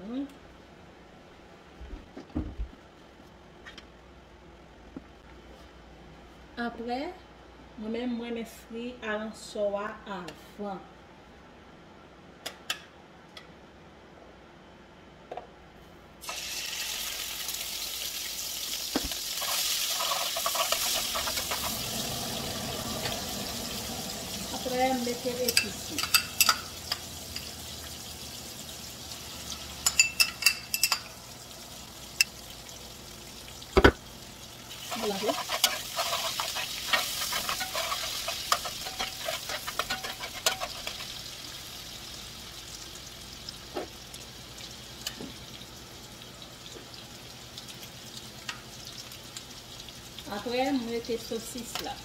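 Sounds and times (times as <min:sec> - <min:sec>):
fish frying in hot oil: 0:16.2 - 0:52.0
spoon clinking on pot: 0:25.5 - 0:27.5, 0:29.8 - 0:31.1.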